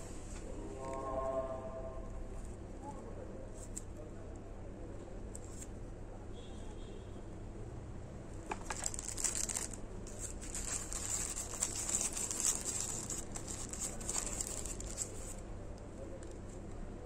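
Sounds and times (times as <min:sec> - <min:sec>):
faint low hum: 0:00.0 - 0:17.0
plastic packaging crinkling: 0:08.4 - 0:15.4.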